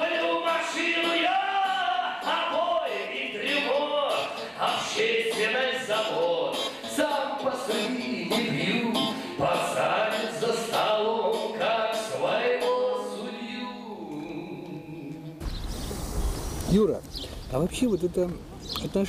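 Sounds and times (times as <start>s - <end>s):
man singing: 0.0s - 15.4s
acoustic guitar: 0.0s - 15.8s.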